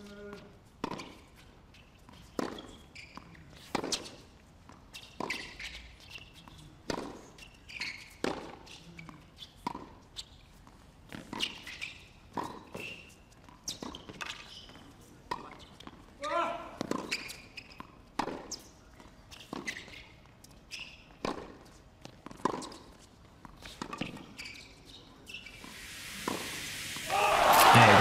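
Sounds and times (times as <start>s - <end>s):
tennis ball bouncing: 0.8s - 1.2s, 2.1s - 2.7s, 9.6s - 10.0s, 16.8s - 18.6s, 21.1s - 24.2s.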